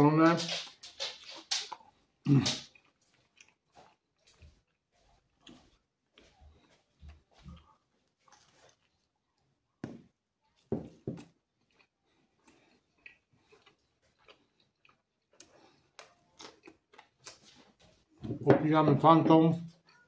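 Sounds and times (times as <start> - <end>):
chewing clicks: 11.6 - 17.4.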